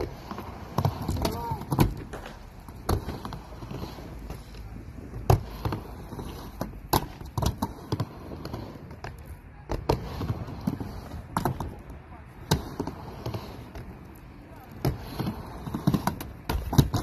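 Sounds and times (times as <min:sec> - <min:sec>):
skateboard wheels rolling: 0:00.0 - 0:17.0
skateboard knocking on ramp: 0:14.7 - 0:17.0.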